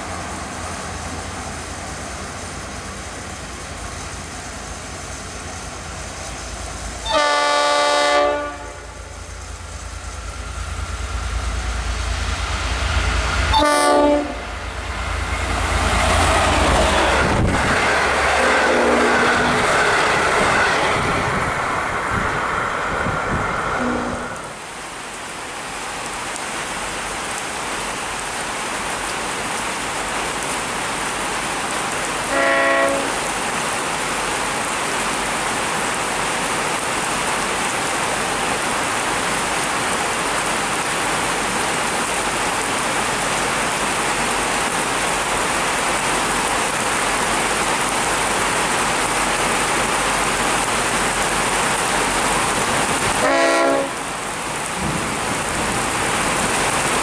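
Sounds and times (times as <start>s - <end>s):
heavy rain falling: 0.0s - 57.0s
locomotive horn blasts: 7.0s - 9.2s, 13.5s - 14.6s, 18.4s - 19.6s, 23.8s - 24.5s, 32.2s - 33.2s, 53.1s - 54.1s.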